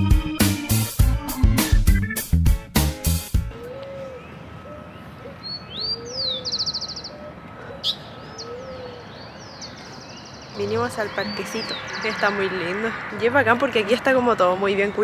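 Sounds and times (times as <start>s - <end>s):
dove cooing: 3.5s - 9.2s
small birds chirping and trilling: 3.5s - 13.5s.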